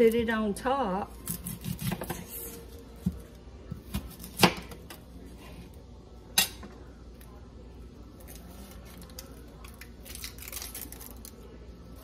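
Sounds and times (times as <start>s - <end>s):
knife slicing onion: 1.2s - 4.9s.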